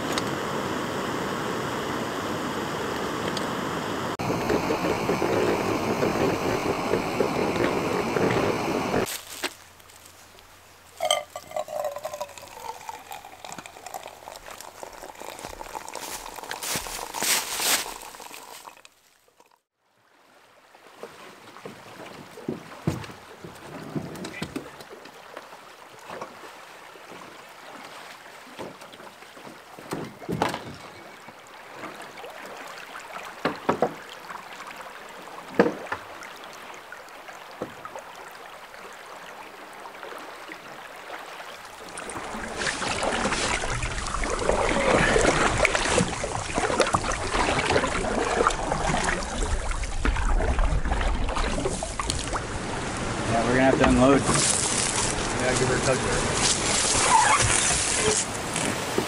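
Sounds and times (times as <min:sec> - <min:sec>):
faint water hiss: 0:00.0 - 0:22.8, 0:30.9 - 0:59.0
rough rushing noise: 0:01.1 - 0:09.1
water splashes: 0:03.0 - 0:10.2, 0:10.8 - 0:59.0
canoe knocks: 0:28.6 - 0:30.9.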